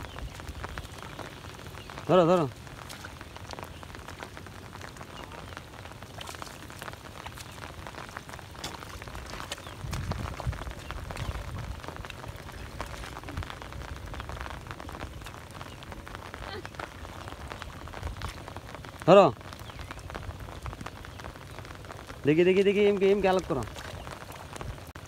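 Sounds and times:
rain pattering on water: 0.0s - 25.0s.

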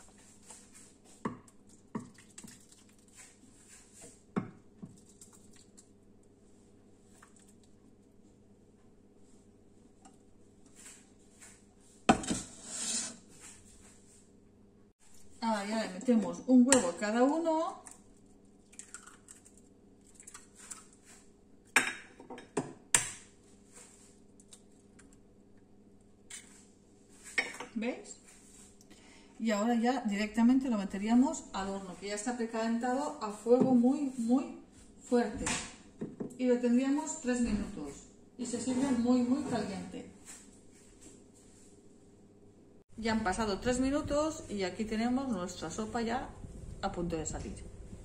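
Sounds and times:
eggs cracking on a dish: 17.8s - 21.0s.

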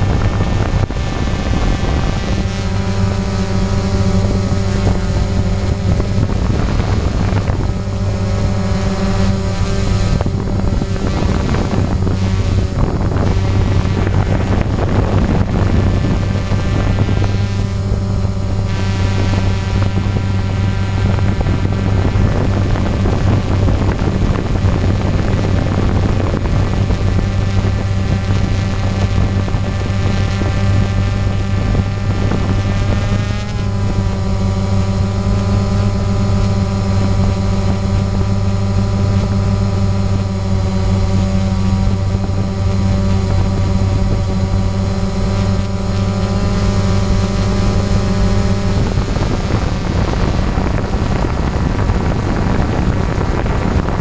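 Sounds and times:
drone motors whining: 0.0s - 54.0s.

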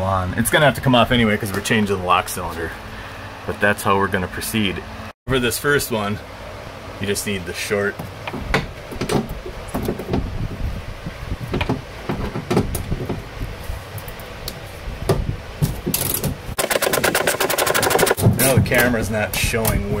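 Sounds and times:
knocks and scrapes in metal door: 8.2s - 10.6s, 11.4s - 13.3s.

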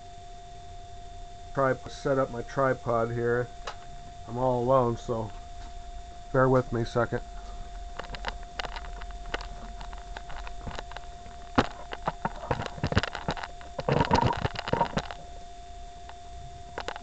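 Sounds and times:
faint electrical hum: 0.0s - 17.0s
rattling: 7.9s - 15.2s.

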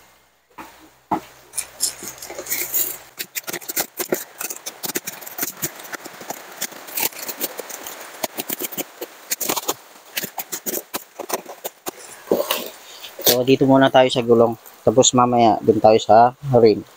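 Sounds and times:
knife cutting cardboard and tape: 0.6s - 13.5s
packaging crackling and ripping: 1.5s - 13.5s.

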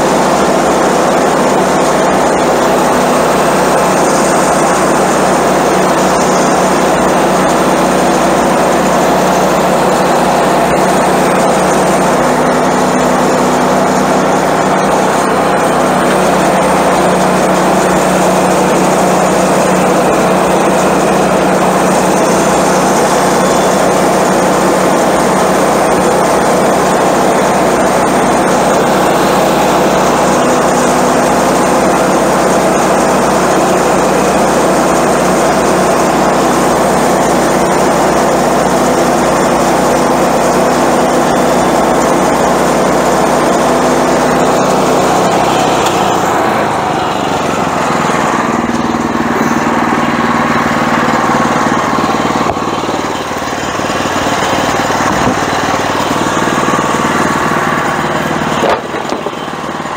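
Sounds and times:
small gas engine running: 0.0s - 59.9s
band blade cutting log: 43.6s - 49.6s, 51.8s - 59.4s.

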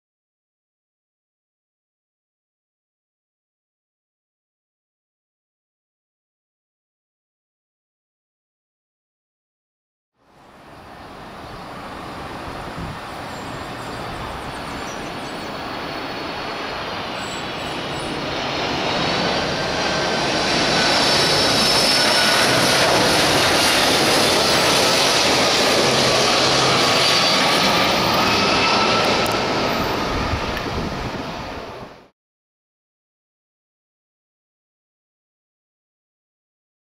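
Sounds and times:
high turbine whines: 10.3s - 32.1s
jet engines roaring: 10.5s - 32.1s.

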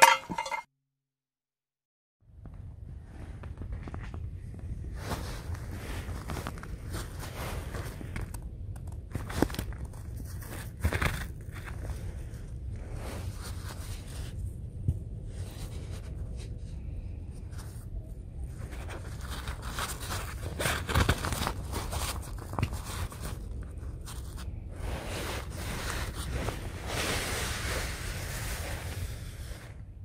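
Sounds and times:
tent fabric rustling and crinkling: 3.0s - 8.4s, 9.0s - 14.5s, 18.4s - 29.8s.

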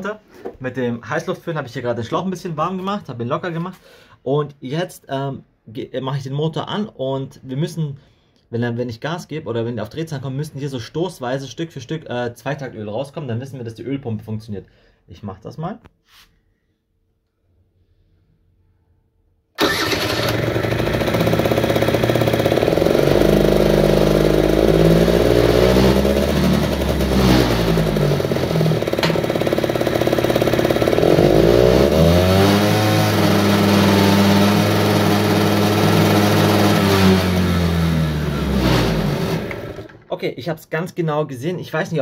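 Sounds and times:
scooter engine starting and revving: 19.6s - 40.1s.

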